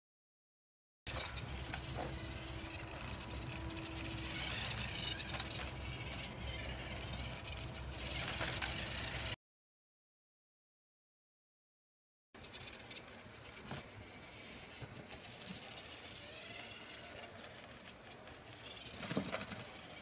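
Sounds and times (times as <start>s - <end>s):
robot motor hum: 1.1s - 9.4s, 12.4s - 20.0s
wheels rolling on pavement: 1.1s - 9.4s, 12.4s - 20.0s.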